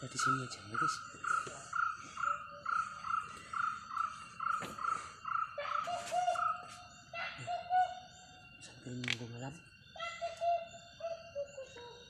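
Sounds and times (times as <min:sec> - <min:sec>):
animal lower repeated call: 0:00.0 - 0:08.2
animal high repeated call: 0:09.9 - 0:12.0.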